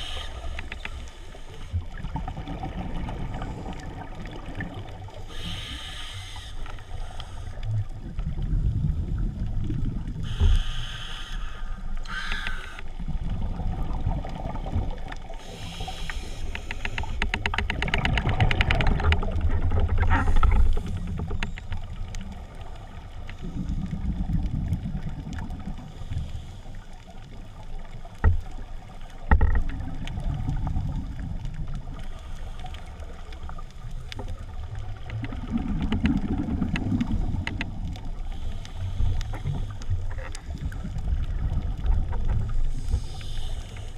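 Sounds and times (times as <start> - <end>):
muffled underwater rumble: 0.0 - 43.9
short hissing bursts: 5.3 - 7.4, 10.2 - 12.8.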